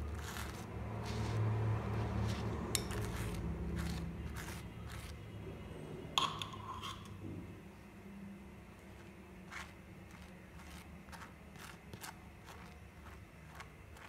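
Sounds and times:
knife scraping mayonnaise on bread: 0.0s - 5.2s, 8.9s - 14.0s
low steady hum: 0.0s - 14.0s.

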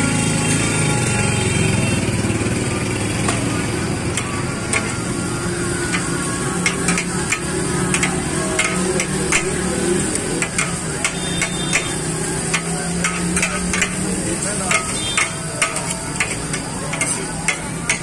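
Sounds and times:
frying sizzle: 2.8s - 18.0s
metal spatulas clanking on griddle: 4.1s - 5.1s, 5.8s - 18.0s.

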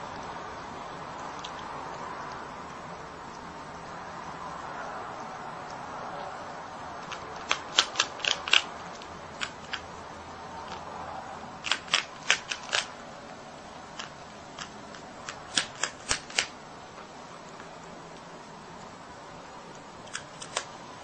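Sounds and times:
faint steady hiss: 0.0s - 21.0s
animal crunching biscuit: 7.0s - 9.8s, 11.6s - 12.9s.

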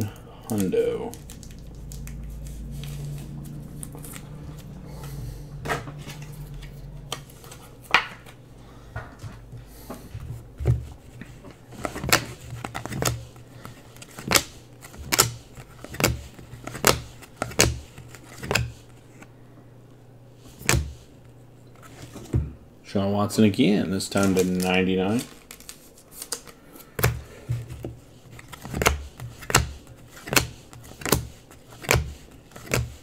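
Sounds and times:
trading cards snapping: 0.0s - 5.1s, 13.9s - 18.7s, 28.4s - 33.0s
low hum: 0.0s - 14.0s.

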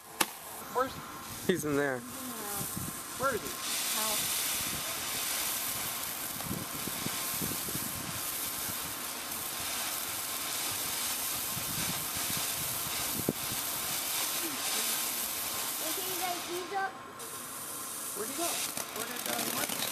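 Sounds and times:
fireworks hissing: 0.0s - 19.9s
sharp pop: 0.2s - 0.4s.

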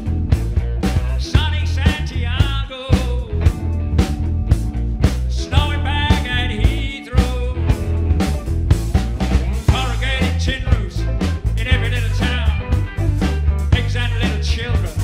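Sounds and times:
rock band playing live: 0.0s - 15.0s
man singing lead: 1.0s - 3.6s, 5.3s - 8.0s, 9.6s - 15.0s.

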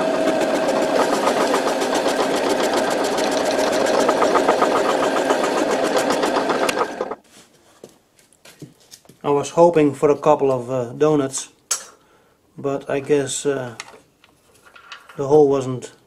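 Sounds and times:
bandsaw cutting metal bar: 0.0s - 7.2s.

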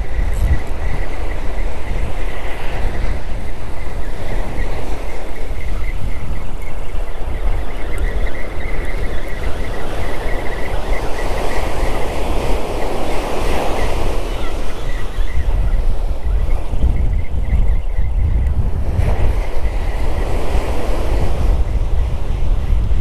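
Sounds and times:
wind buffeting microphone: 0.0s - 23.0s
surf breaking on beach: 18.6s - 23.0s.

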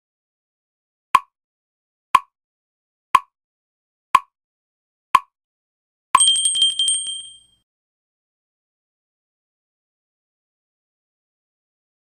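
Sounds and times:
bell ringing: 6.2s - 7.6s.

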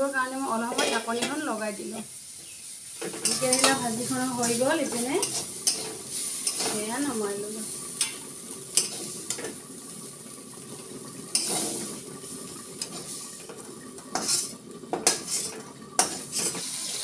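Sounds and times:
curry sizzling in wok: 0.0s - 17.0s
utensils clinking on pots: 0.5s - 2.1s, 2.9s - 9.6s, 11.3s - 12.0s, 12.8s - 17.0s.

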